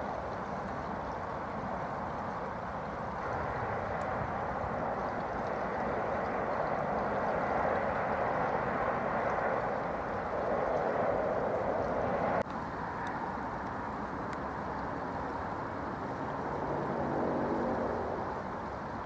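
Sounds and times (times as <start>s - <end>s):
river running over stones: 0.0s - 19.0s.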